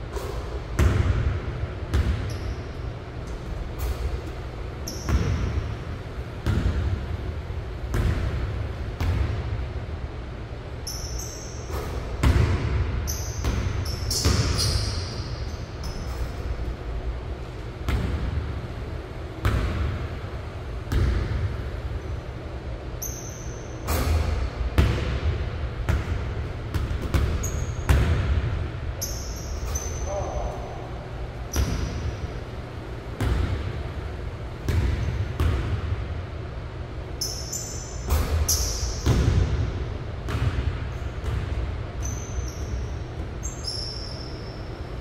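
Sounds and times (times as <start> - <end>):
basketball bouncing on hardwood floor: 39.0 - 39.6, 40.3 - 42.8.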